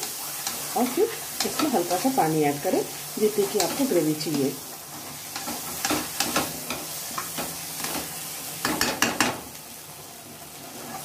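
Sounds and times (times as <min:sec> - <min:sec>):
paste sizzling in oil: 0:00.0 - 0:11.0
metal spatula scraping a pan: 0:03.4 - 0:09.4.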